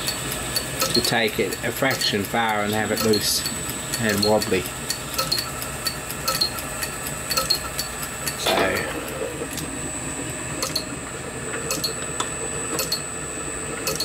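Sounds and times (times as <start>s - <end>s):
light ticking: 0.0s - 8.9s.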